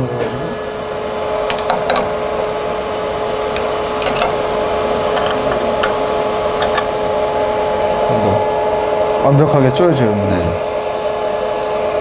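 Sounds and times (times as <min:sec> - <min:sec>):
steady machine hum: 0:00.0 - 0:12.0
spanners clinking on metal: 0:03.6 - 0:04.5, 0:05.1 - 0:06.0, 0:06.6 - 0:06.9.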